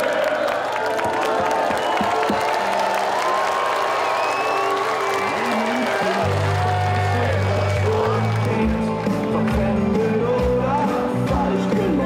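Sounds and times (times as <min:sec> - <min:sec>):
people clapping: 0:00.0 - 0:11.4
crowd cheering: 0:00.0 - 0:12.0
music playing: 0:00.0 - 0:12.0.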